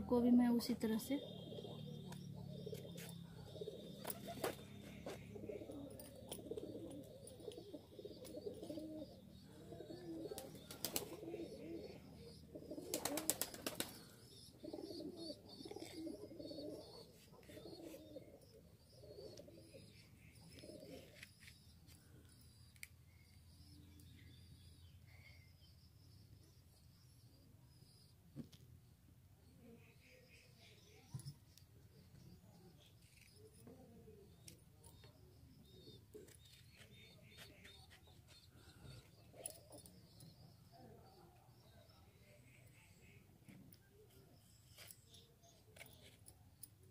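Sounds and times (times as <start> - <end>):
pigeons cooing: 0.9 - 21.5, 33.1 - 46.2.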